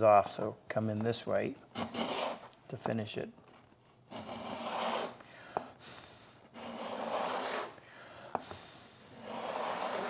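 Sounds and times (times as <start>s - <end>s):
router plane rasping through wood: 4.1s - 5.2s, 6.6s - 7.8s, 9.2s - 10.0s.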